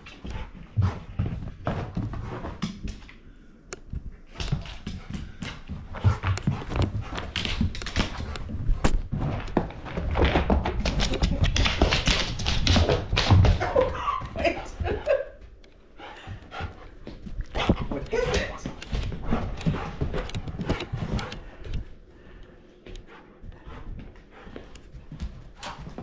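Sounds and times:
puppy paws thudding on floor: 0.0 - 3.2, 3.9 - 15.3.

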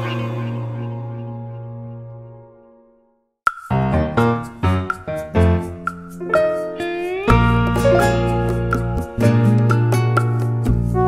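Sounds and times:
keyboard notes: 3.7 - 11.0.

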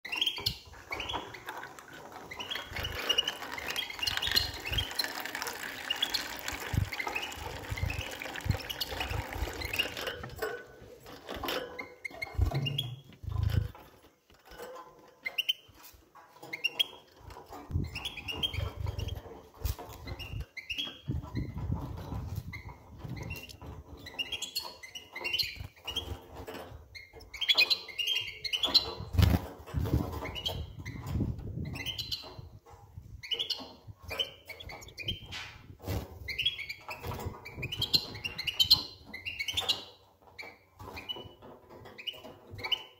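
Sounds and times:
birds moving in cage: 0.1 - 42.9
young birds chirping: 2.4 - 10.0.

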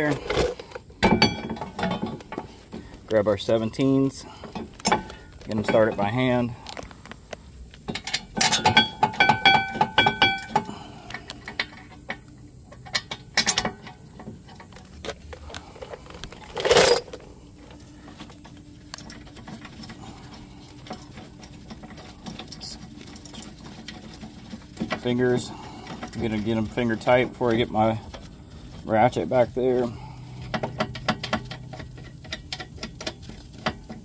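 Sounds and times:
metal bolts clinking: 0.0 - 2.5, 3.1 - 6.8, 7.9 - 14.8, 16.4 - 17.2, 28.8 - 34.0.

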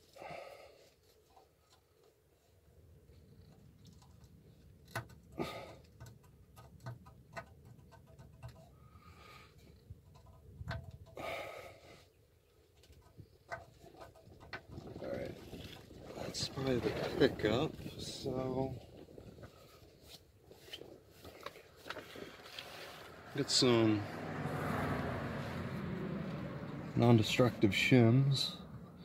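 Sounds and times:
metal oil pan clicking and scraping: 3.6 - 8.9, 9.6 - 11.2, 12.8 - 16.0.

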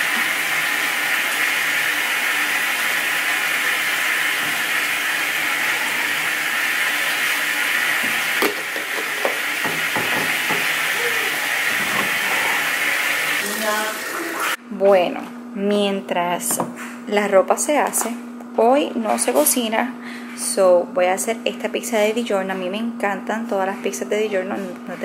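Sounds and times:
water rushing into washing machine: 0.0 - 14.6.

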